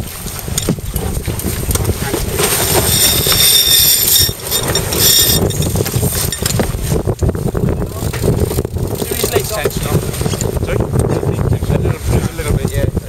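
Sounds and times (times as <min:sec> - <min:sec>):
water rushing along hull: 0:00.0 - 0:13.0
wind buffeting microphone: 0:00.0 - 0:13.0
high rattling whir: 0:02.1 - 0:06.8.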